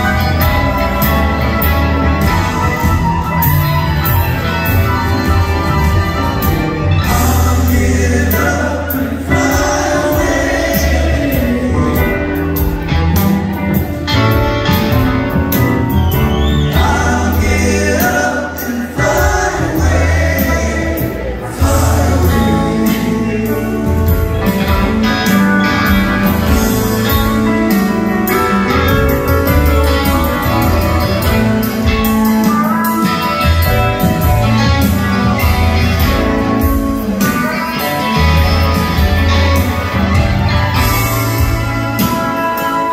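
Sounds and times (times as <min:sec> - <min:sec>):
piano: 0:00.0 - 0:42.9
upright bass: 0:00.0 - 0:42.9
person singing: 0:06.9 - 0:12.8.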